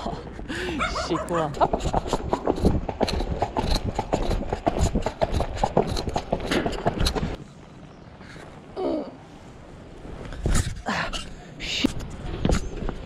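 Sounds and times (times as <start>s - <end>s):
horse hooves on asphalt: 0.9s - 7.4s.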